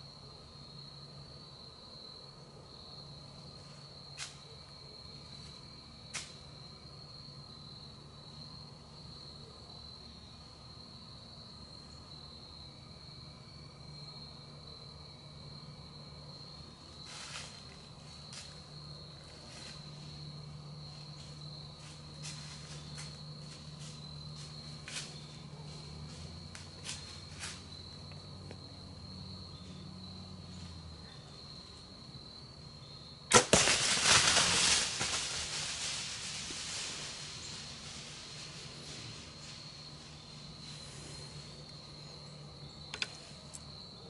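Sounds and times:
insect trill: 0.0s - 44.0s
bow string crack: 33.3s - 36.8s
animal crashing through dry leaves: 33.3s - 39.7s.

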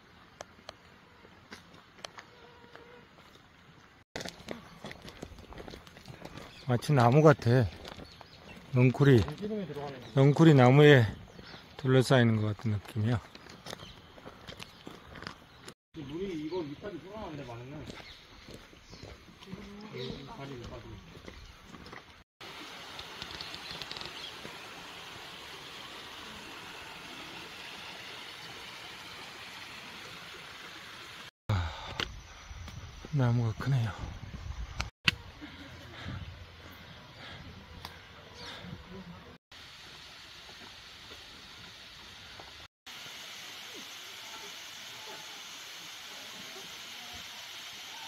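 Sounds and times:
stream rushing over stones: 22.4s - 31.3s
waterfall falling onto rocks: 22.4s - 31.3s.

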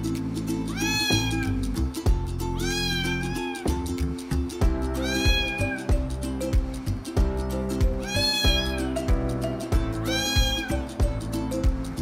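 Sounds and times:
background music with steady beat: 0.0s - 12.0s
cat meowing: 0.7s - 1.6s, 2.6s - 3.7s, 5.0s - 5.9s, 8.0s - 9.0s, 10.0s - 10.8s.

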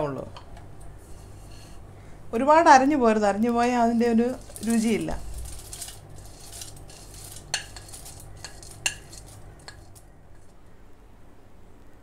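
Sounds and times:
crisp prawns rustling: 3.4s - 10.6s
metal spoon clinking: 3.6s - 10.6s.

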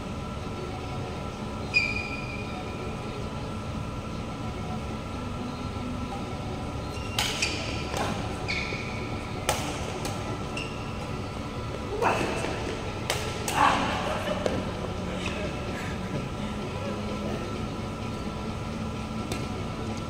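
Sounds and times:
steady background hum: 0.0s - 20.0s
shoes squeaking on court: 6.8s - 12.7s
racket striking shuttlecock: 6.9s - 11.1s, 12.4s - 14.6s, 19.2s - 19.5s.

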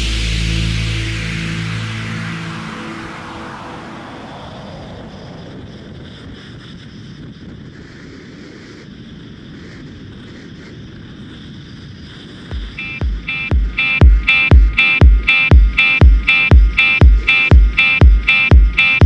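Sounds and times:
wind rushing over microphone: 2.5s - 13.9s.

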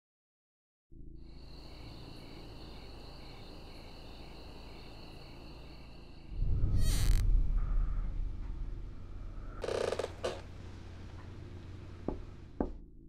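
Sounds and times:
low hum: 1.0s - 13.0s
crickets chirping: 1.1s - 12.5s
deep rumble: 6.2s - 13.0s.

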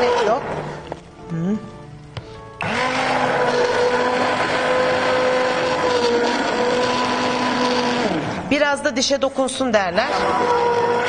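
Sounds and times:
immersion blender motor whining: 0.0s - 0.8s, 2.6s - 8.6s, 9.9s - 11.0s.

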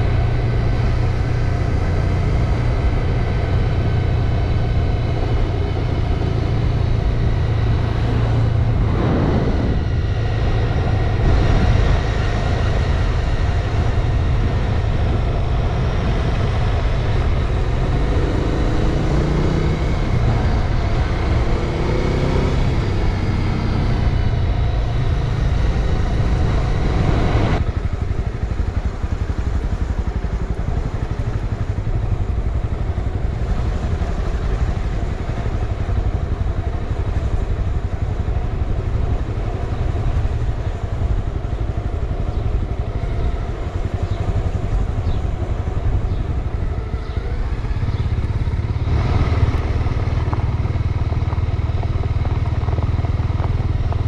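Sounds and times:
motorcycle engine running: 0.0s - 54.0s
wind noise: 0.0s - 54.0s.

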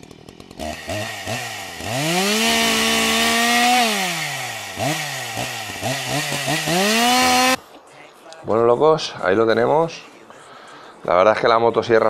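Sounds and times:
electric chainsaw cutting wood: 0.0s - 7.6s.

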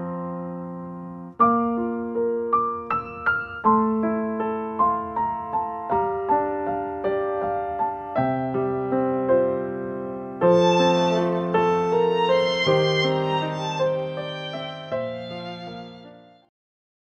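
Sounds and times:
gentle piano melody: 0.0s - 16.5s.

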